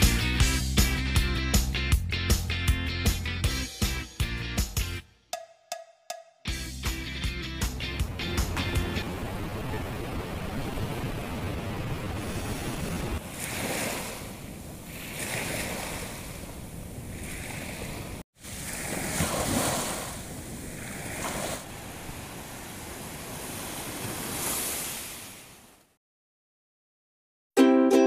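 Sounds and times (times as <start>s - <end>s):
small waves washing on sand: 9.0s - 25.7s.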